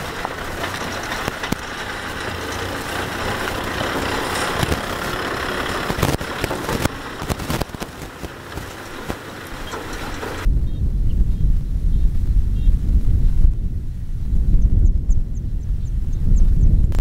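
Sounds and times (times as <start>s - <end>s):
tractor diesel engine running: 0.0s - 10.5s.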